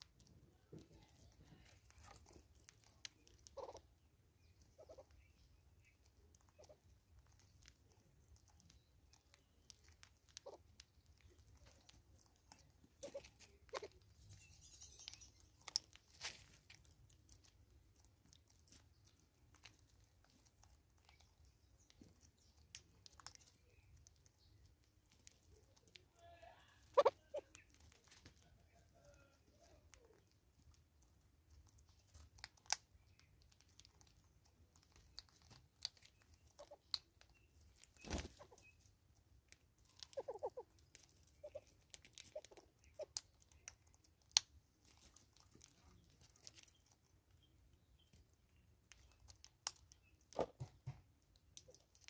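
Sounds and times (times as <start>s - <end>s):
bird clucking calls: 26.9s - 27.7s, 40.1s - 40.6s, 41.4s - 41.7s.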